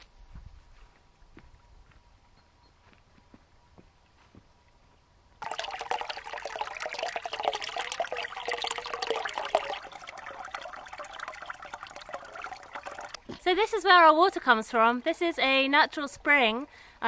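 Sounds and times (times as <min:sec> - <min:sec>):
water pouring into stone trough: 0:05.4 - 0:13.2.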